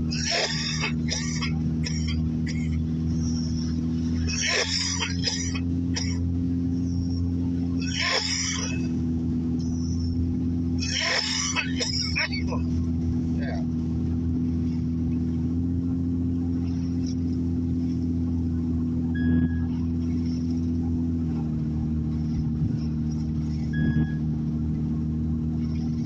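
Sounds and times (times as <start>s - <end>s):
car engine and road hum: 0.0s - 26.0s
short high beep: 19.2s - 19.7s, 23.7s - 24.2s.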